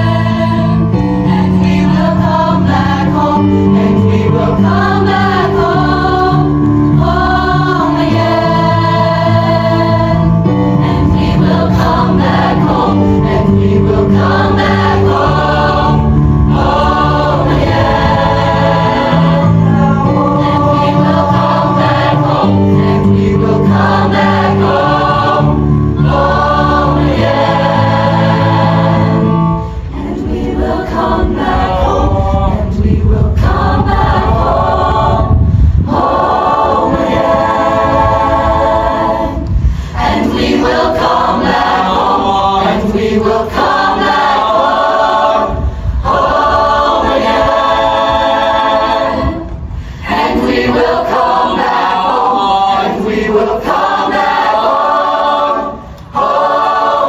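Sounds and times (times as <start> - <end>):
choir singing: 0.0 - 57.0
singers breathing: 39.4 - 40.1, 45.5 - 46.0, 49.5 - 50.1, 55.7 - 56.1.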